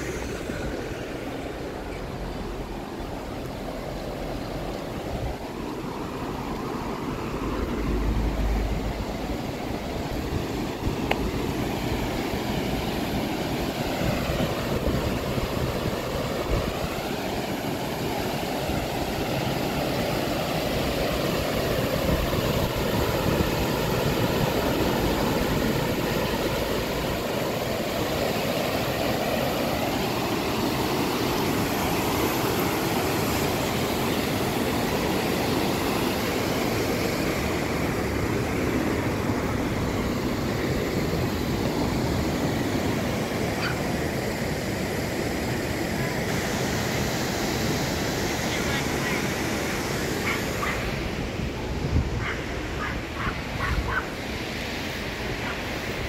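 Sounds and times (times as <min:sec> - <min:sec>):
passing vehicles rushing: 0:00.0 - 0:12.9.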